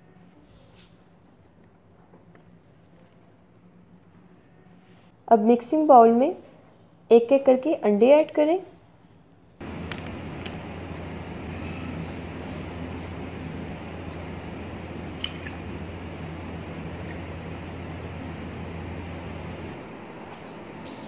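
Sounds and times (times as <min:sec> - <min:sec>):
faint high chirps: 0:09.6 - 0:20.1
low hum: 0:09.6 - 0:21.0.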